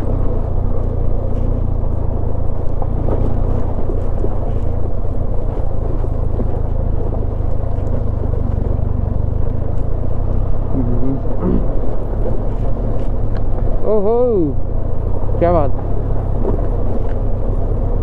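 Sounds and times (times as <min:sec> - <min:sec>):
motorcycle engine running: 0:00.0 - 0:18.0
tyres on rough gravel: 0:00.0 - 0:18.0.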